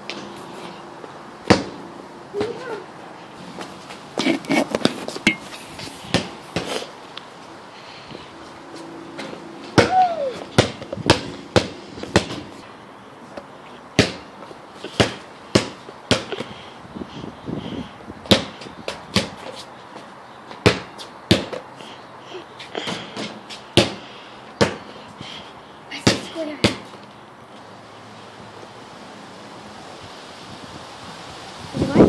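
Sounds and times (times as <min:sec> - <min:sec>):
basketball bouncing on concrete: 0:01.4 - 0:02.8, 0:06.1 - 0:06.8, 0:09.2 - 0:12.5, 0:13.4 - 0:16.5, 0:18.2 - 0:19.6, 0:20.5 - 0:21.7, 0:22.8 - 0:24.0, 0:24.6 - 0:24.9, 0:26.0 - 0:27.1.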